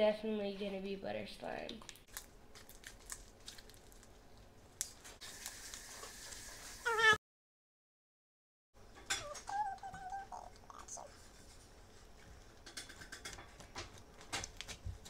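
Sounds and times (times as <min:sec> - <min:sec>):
high-pitched cry: 0:06.9 - 0:07.2, 0:09.2 - 0:11.1.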